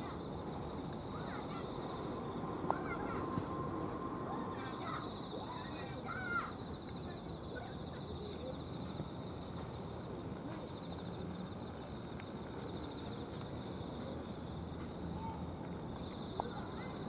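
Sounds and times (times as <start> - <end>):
high insect trill: 0.0 - 10.0.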